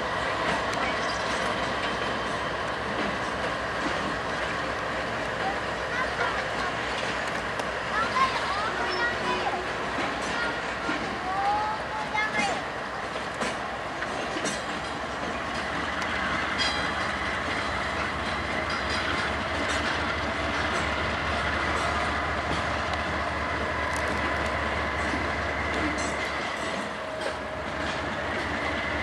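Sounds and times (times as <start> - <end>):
low train rumble: 0.0 - 29.0
train wheels clattering on rails: 0.0 - 29.0
high wheel squeal: 0.9 - 1.6.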